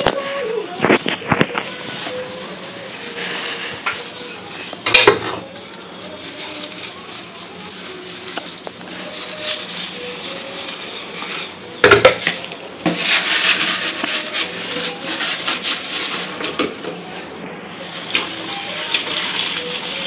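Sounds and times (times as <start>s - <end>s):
dishes scrubbed in metal sink: 0.8s - 17.2s
dishes clinking: 4.8s - 5.7s, 11.8s - 12.5s.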